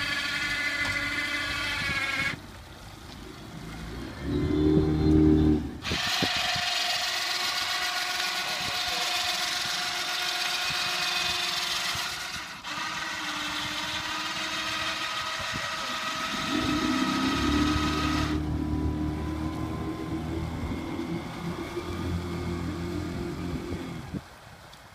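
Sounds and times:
machine engine high whine: 0:13.9 - 0:24.1.

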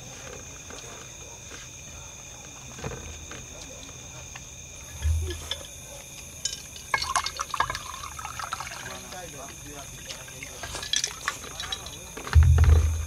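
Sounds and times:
crunches of people eating: 0:00.0 - 0:12.7
night insects trilling: 0:00.0 - 0:13.0
dull bump: 0:12.3 - 0:13.0.

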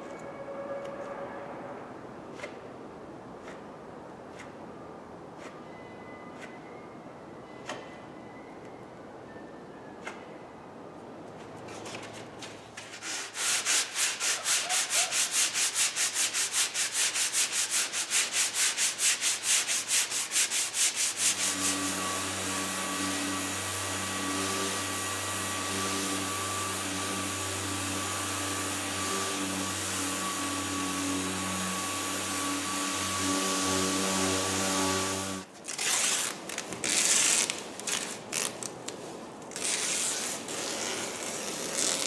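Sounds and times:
hand sanding rubbing strokes: 0:11.7 - 0:35.5, 0:36.9 - 0:42.0
orbital sander humming: 0:21.1 - 0:35.5.

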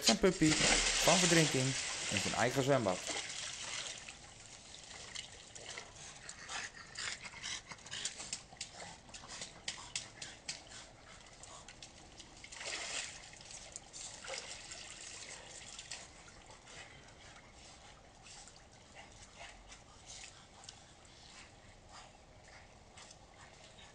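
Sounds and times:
water splashing faintly: 0:00.0 - 0:06.5.

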